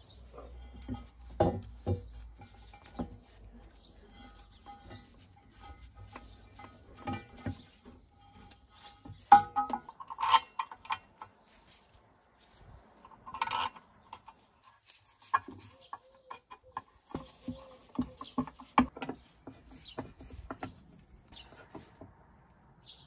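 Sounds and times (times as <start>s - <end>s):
metal parts clicking and knocking: 4.1s - 11.6s, 13.0s - 20.8s.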